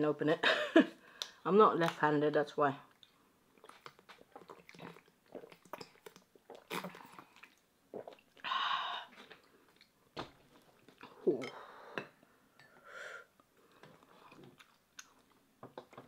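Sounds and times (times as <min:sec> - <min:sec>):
person gulping water: 0:03.0 - 0:10.0, 0:10.8 - 0:12.2
breathy exhale: 0:12.7 - 0:13.3.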